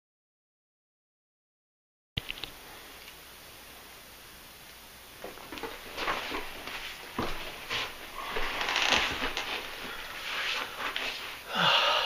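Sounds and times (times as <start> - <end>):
rustling: 5.2 - 11.4
creaking: 8.2 - 10.0.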